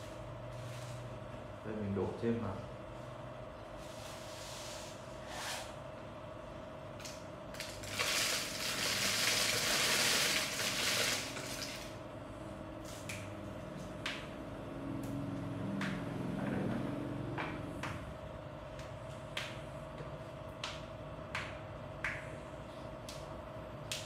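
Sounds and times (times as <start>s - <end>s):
rice grain pouring into bottle: 7.6s - 11.9s.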